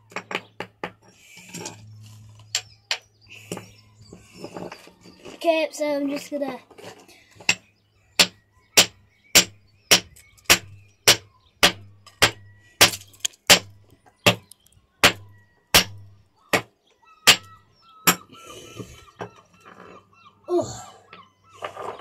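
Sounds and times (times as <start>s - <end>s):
hammer striking rock: 8.2s - 13.7s, 14.3s - 15.2s, 15.8s - 16.7s, 17.3s - 17.5s.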